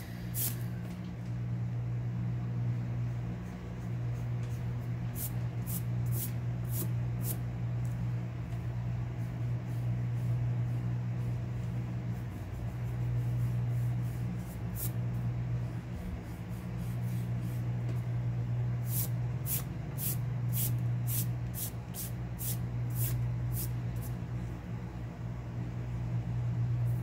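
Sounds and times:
steady low hum: 0:00.0 - 0:27.0
rubbing strokes on paper: 0:09.1 - 0:17.7.

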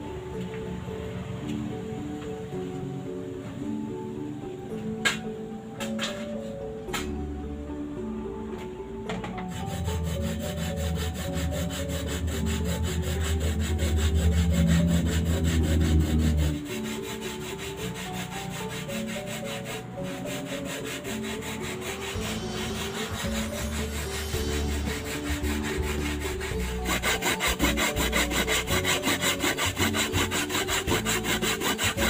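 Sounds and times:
soft background music: 0:00.0 - 0:32.0
hand grater rasping: 0:09.5 - 0:32.0.

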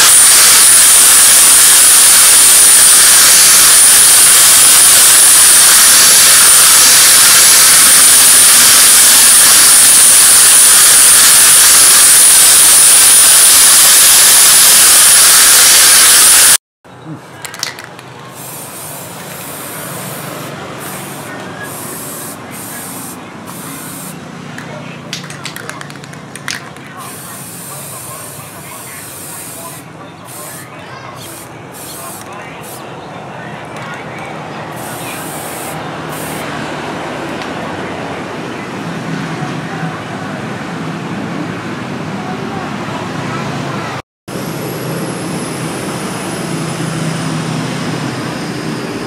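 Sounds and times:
aerosol spray hissing: 0:00.0 - 0:16.6, 0:18.3 - 0:24.2, 0:27.0 - 0:32.8, 0:34.8 - 0:36.5
steady background noise: 0:16.9 - 0:49.0.

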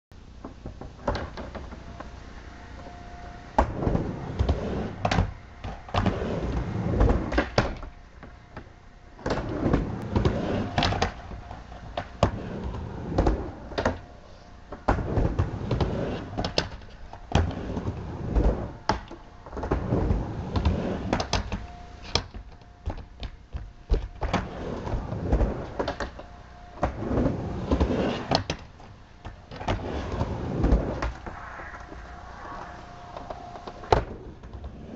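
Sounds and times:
skateboard wheels rumbling: 0:00.4 - 0:34.9
skateboard knocking on ramp: 0:03.6 - 0:14.0, 0:14.7 - 0:26.2.

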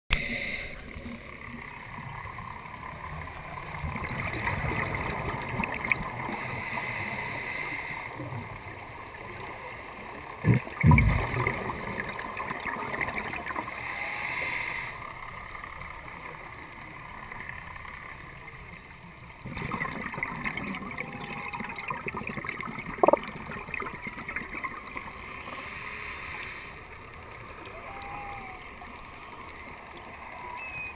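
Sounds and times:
underwater regulator breathing bubbles: 0:19.5 - 0:23.4.

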